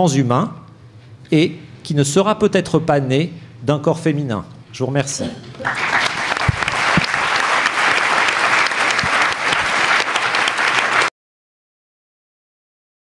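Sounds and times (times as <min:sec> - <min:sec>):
audience applauding: 0:05.6 - 0:11.1.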